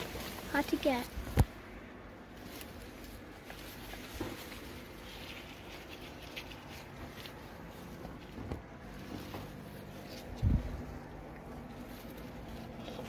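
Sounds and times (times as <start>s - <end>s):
leaves rustling: 0.0s - 13.0s.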